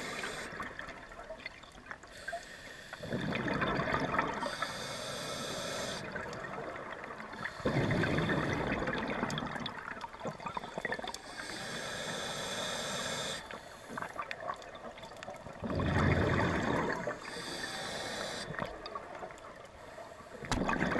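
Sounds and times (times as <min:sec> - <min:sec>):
regulator hiss on inhale: 0:00.0 - 0:00.7, 0:02.1 - 0:03.2, 0:04.4 - 0:06.2, 0:10.6 - 0:14.2, 0:17.2 - 0:18.7
exhaled bubbles rumbling: 0:03.0 - 0:04.5, 0:06.0 - 0:11.1, 0:14.0 - 0:17.3, 0:20.4 - 0:20.9.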